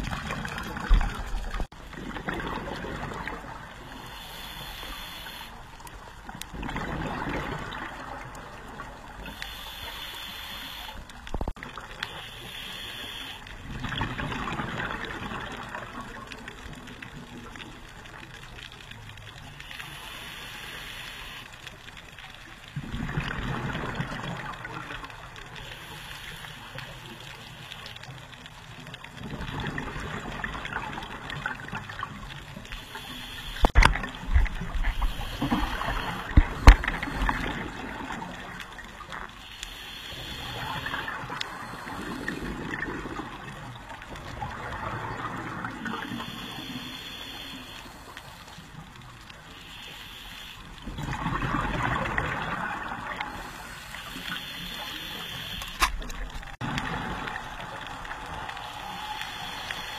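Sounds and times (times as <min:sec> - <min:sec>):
regulator breathing hiss: 0:03.9 - 0:05.6, 0:09.2 - 0:11.2, 0:12.0 - 0:13.5, 0:19.6 - 0:21.8, 0:25.6 - 0:28.0, 0:32.6 - 0:33.8, 0:34.9 - 0:38.1, 0:39.4 - 0:42.6, 0:45.8 - 0:50.8, 0:53.2 - 0:55.8, 0:57.4 - 0:59.9
exhale bubbling: 0:32.7 - 0:48.8, 0:49.6 - 0:59.9.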